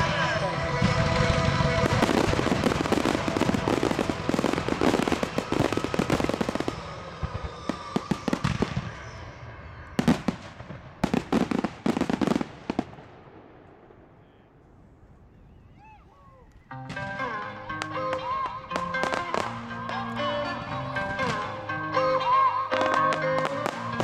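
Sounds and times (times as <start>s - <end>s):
fireworks bangs and crackles: 0.0s - 14.5s, 16.9s - 20.0s, 21.0s - 21.7s, 22.7s - 24.0s
faint fireworks hiss: 0.3s - 14.0s.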